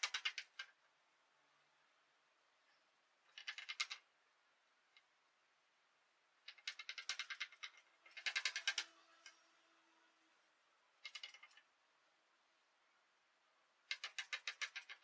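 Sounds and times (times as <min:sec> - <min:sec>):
wooden marionette clicking: 0:00.0 - 0:00.8, 0:03.2 - 0:04.1, 0:04.8 - 0:05.2, 0:06.4 - 0:09.5, 0:10.9 - 0:11.8, 0:13.8 - 0:15.0.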